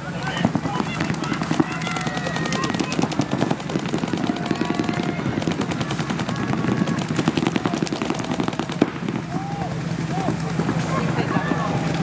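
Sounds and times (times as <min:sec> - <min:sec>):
paintball markers firing: 0:00.2 - 0:09.2.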